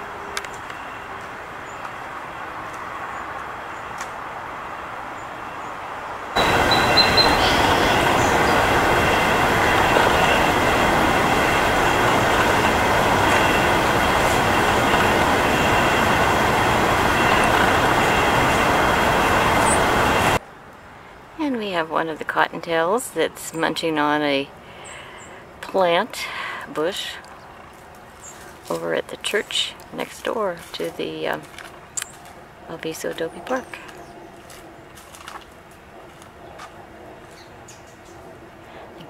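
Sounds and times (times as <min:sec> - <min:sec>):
rushing rumbling noise: 0:06.4 - 0:20.4.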